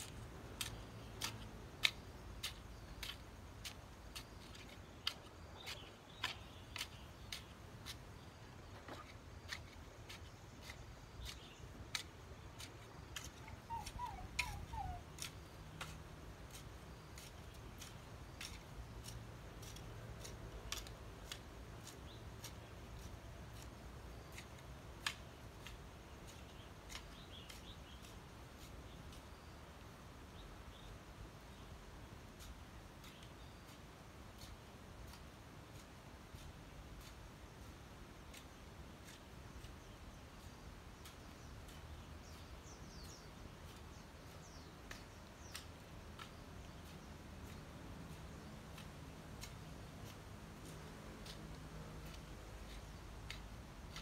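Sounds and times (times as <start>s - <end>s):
bird chirping: 0.0s - 25.7s, 26.3s - 28.2s, 38.3s - 51.4s.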